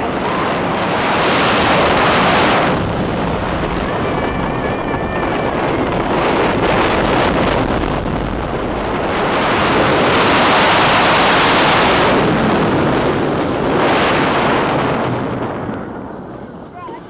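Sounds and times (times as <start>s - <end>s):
roller coaster train rumble: 0.0s - 17.0s
wind rushing over microphone: 0.0s - 17.0s.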